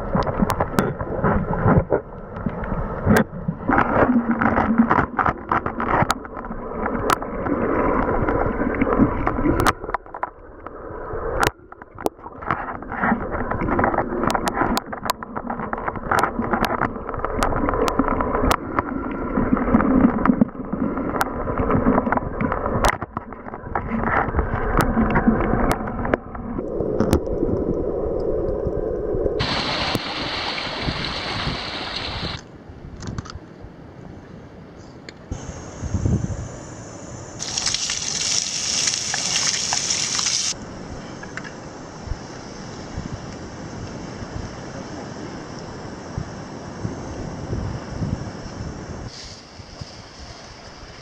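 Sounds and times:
hiss of rushing water: 29.4 - 32.4, 34.8 - 51.0.

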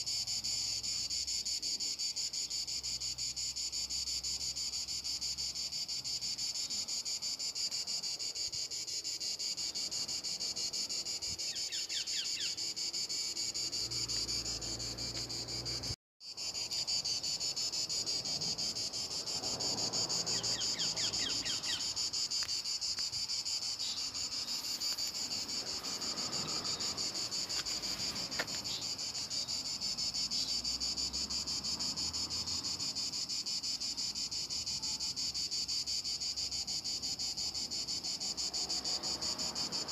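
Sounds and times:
insects chirping: 0.0 - 39.9.

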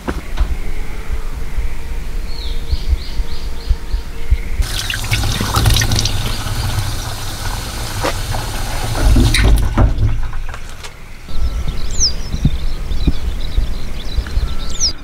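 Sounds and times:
tap water splashing into sink: 4.6 - 10.9.

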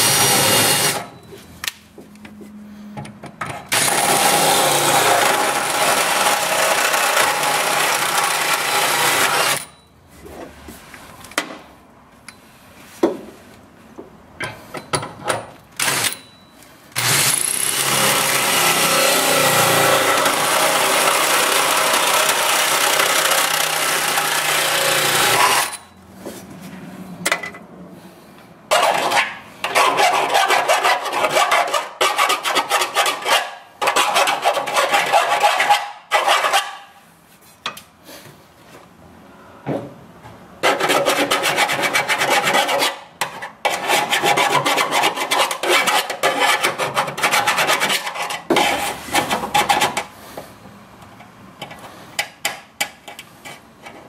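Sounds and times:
hole saw rasping through metal: 17.0 - 25.9, 28.7 - 36.9.

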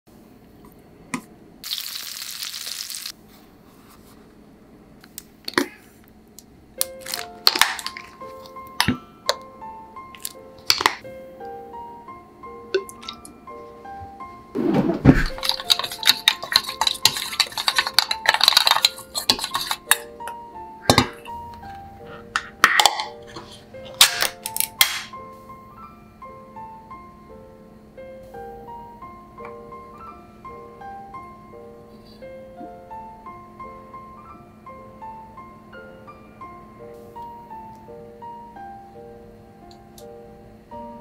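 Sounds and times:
hot oil sizzling: 1.6 - 3.2
soft piano music: 6.7 - 41.0
spoon scraping metal bowl: 15.3 - 20.1.

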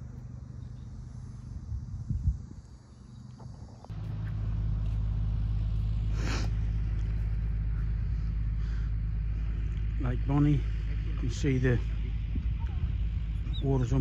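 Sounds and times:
open-air ambience: 0.0 - 14.0
wind buffeting microphone: 1.6 - 2.8, 10.9 - 14.0.

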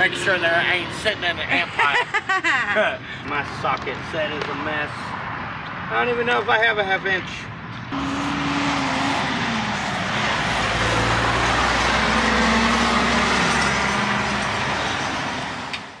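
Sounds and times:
heavy truck engine rumbling: 7.8 - 16.0.

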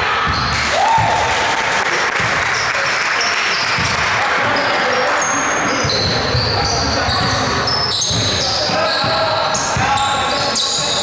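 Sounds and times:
noisy din in hall: 0.0 - 11.0
basketball bouncing on gym floor: 0.2 - 1.3, 3.6 - 4.1, 5.7 - 10.1
shoe squeaks: 3.5 - 11.0.

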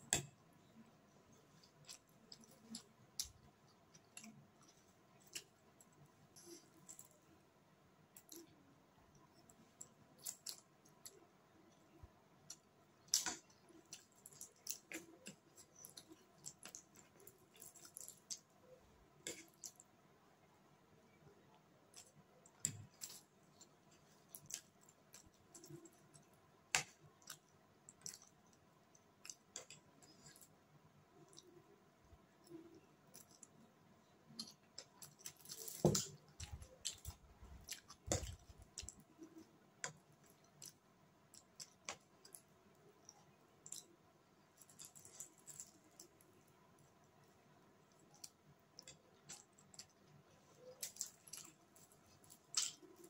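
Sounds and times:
person chewing noodles: 21.9 - 30.5.

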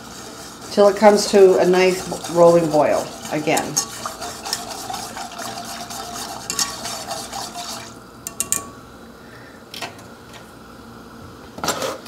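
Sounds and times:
whisk swishing in saucepan: 0.0 - 8.0
whisk tapping pan: 0.0 - 8.7.

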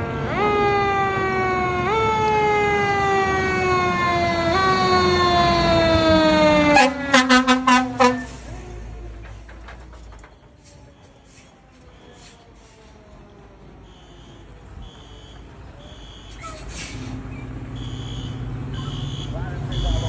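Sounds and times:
fire truck siren wailing: 0.0 - 20.0
truck rumbling past: 0.0 - 20.0
short air horn blasts: 6.7 - 8.5.

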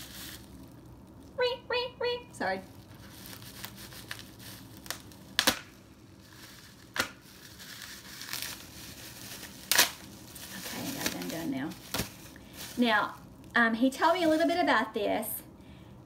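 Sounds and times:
plastic wrapping crumpled and torn: 0.0 - 1.4, 2.6 - 14.7
plastic snapping: 4.8 - 5.8, 6.9 - 7.2.

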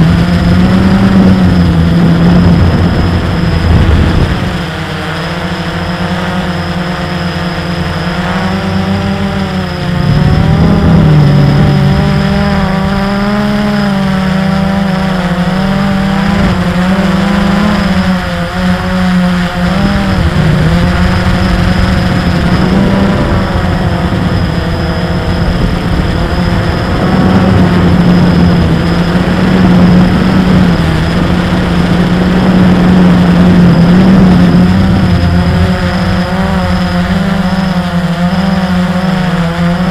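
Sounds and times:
drone propellers buzzing: 0.0 - 39.9.

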